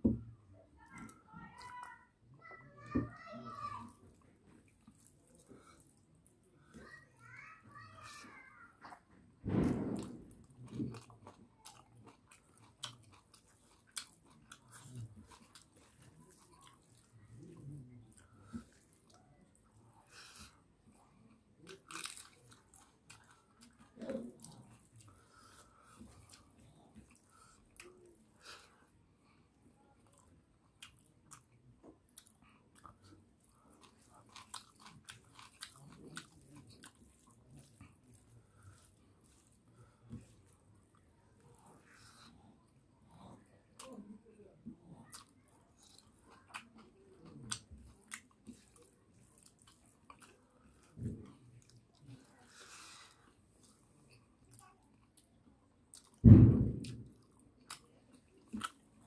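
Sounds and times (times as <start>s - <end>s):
low thump: 9.4s - 10.4s, 56.2s - 56.9s
person chewing: 10.0s - 28.8s, 30.0s - 44.0s, 44.7s - 56.2s, 56.8s - 59.0s.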